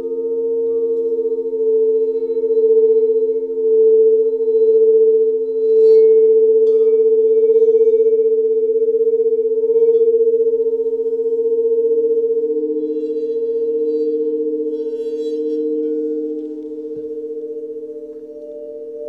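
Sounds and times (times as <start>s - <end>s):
singing bowls ringing: 0.0s - 19.0s
fainter higher ring: 9.7s - 19.0s.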